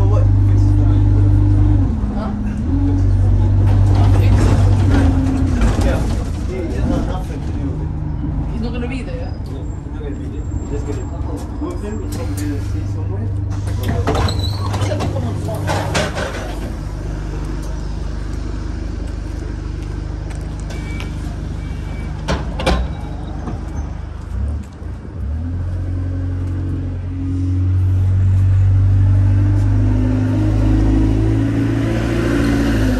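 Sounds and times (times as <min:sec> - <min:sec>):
bus diesel engine: 0:00.0 - 0:32.9.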